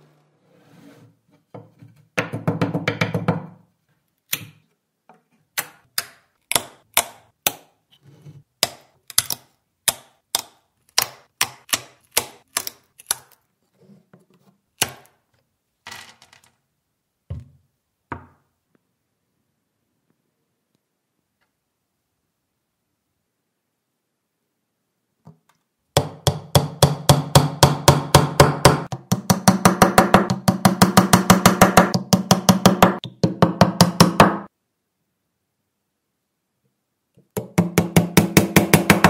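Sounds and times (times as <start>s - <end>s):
wooden plugs snapping: 5.5s - 7.7s, 8.6s - 13.4s.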